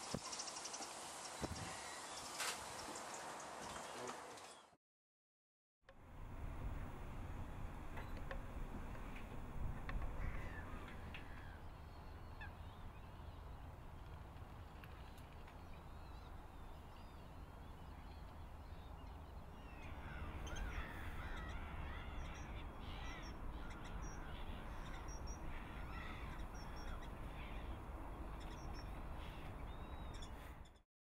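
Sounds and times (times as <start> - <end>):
low rumble of wind: 5.9 - 30.8
birds chattering calls: 14.6 - 30.8.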